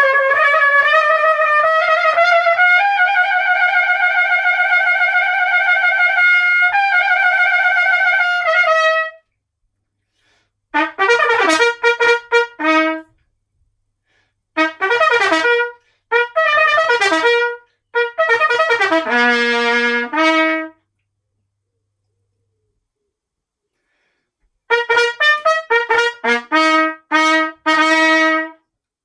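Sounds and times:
solo trumpet playing: 0:00.0 - 0:09.3, 0:10.7 - 0:13.2, 0:14.6 - 0:20.9, 0:24.7 - 0:28.7.

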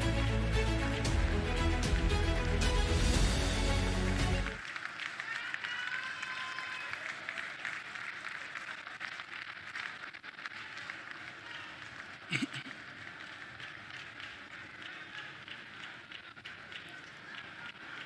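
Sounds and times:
scattered clicks and claps: 0:04.6 - 0:18.0
crowd murmur: 0:10.8 - 0:18.0.

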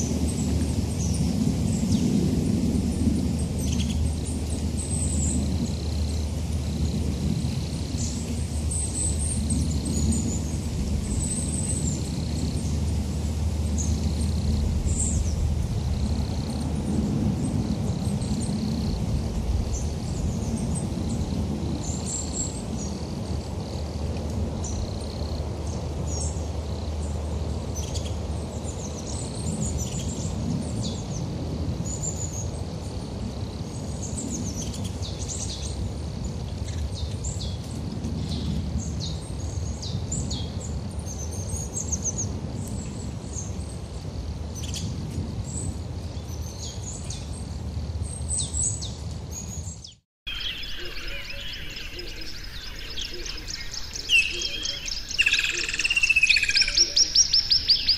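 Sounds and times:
birds chirping: 0:50.3 - 0:57.9
low outdoor rumble: 0:50.3 - 0:57.9.

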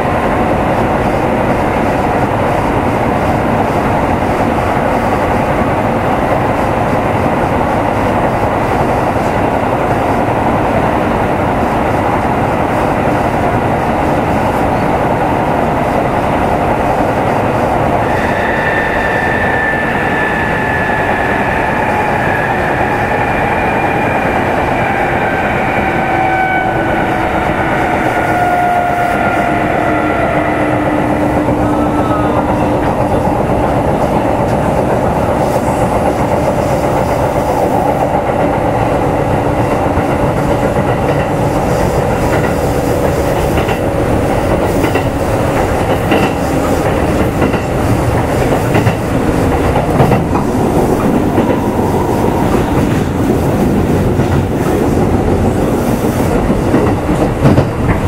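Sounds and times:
train wheels rumbling on rail: 0:00.0 - 0:58.0
train motor whine: 0:18.0 - 0:34.7
clickety-clack over rail joints: 0:24.8 - 0:58.0.

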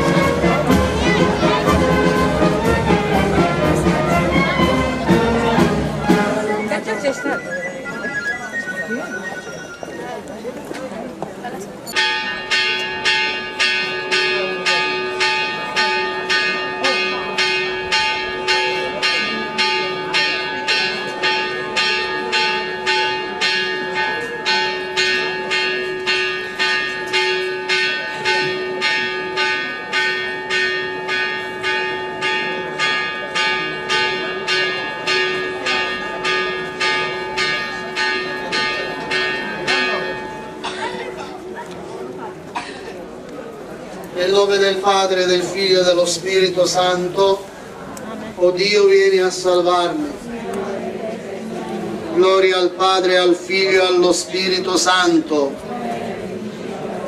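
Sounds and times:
church bell ringing quickly: 0:11.9 - 0:42.7, 0:44.2 - 0:47.5, 0:52.2 - 0:55.6.

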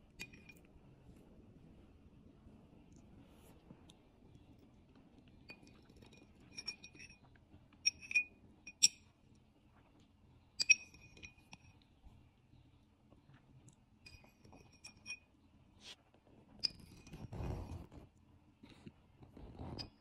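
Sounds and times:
metal spoon clinking ceramic bowl: 0:00.2 - 0:00.6, 0:05.5 - 0:07.2, 0:07.8 - 0:09.0, 0:10.6 - 0:11.7, 0:14.0 - 0:15.3.

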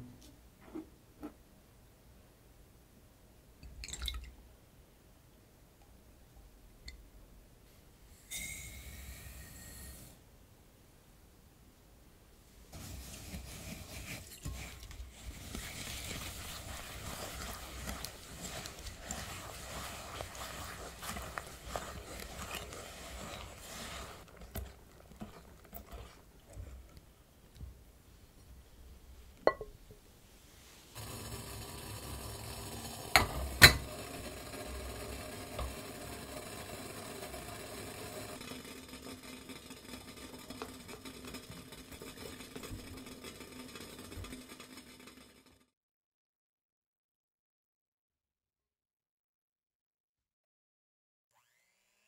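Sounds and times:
steady low hiss: 0:00.0 - 0:21.6, 0:26.2 - 0:31.0
whisk swishing egg whites: 0:12.8 - 0:28.2, 0:30.9 - 0:45.4
bowl knocking as it settles: 0:29.4 - 0:29.8
glass bowl clinking on metal pot: 0:29.5 - 0:29.8.

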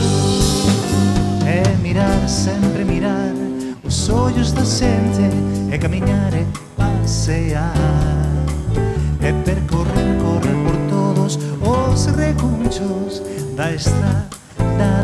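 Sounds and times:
cymbals: 0:00.0 - 0:02.3
live band playing: 0:00.0 - 0:15.0.

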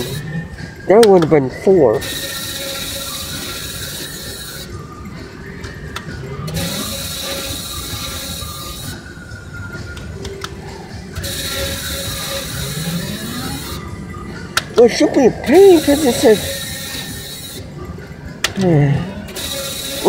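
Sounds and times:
slot machine reels clicking: 0:00.0 - 0:04.8, 0:05.9 - 0:09.1, 0:11.1 - 0:13.9, 0:14.7 - 0:17.7, 0:19.2 - 0:20.0
slot machine reels whirring: 0:00.0 - 0:09.6, 0:11.0 - 0:18.0, 0:19.2 - 0:20.0
casino machines chiming: 0:00.0 - 0:09.7, 0:11.0 - 0:20.0.

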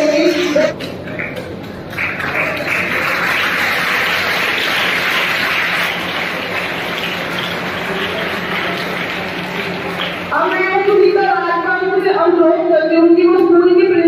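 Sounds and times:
audience clapping: 0:00.7 - 0:11.0.

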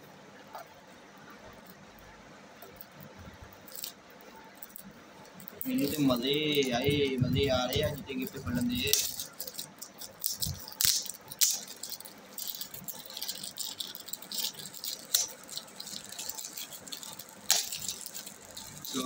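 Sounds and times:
wrapping paper crinkling and tearing: 0:03.6 - 0:04.0, 0:04.6 - 0:19.0.

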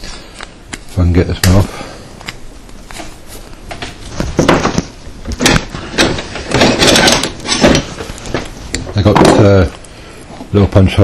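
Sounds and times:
metal tools clattering and scraping: 0:05.4 - 0:09.6.

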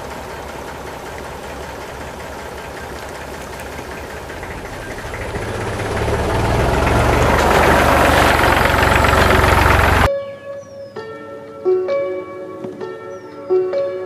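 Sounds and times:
engine running with even pulse: 0:00.0 - 0:10.1.

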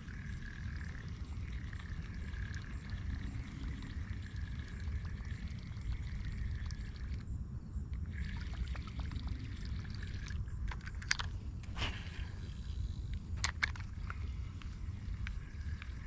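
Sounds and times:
fishing lure churning water: 0:00.0 - 0:07.3, 0:07.9 - 0:16.0
sharp clicks: 0:13.1 - 0:16.0.

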